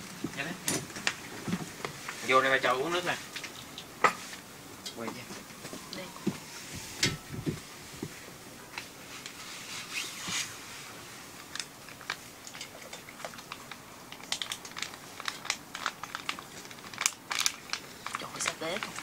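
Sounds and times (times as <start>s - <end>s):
faint steady hiss: 0.0s - 19.0s
sharp crackles in a wok: 8.1s - 19.0s
plastic sachet crinkling: 11.4s - 19.0s.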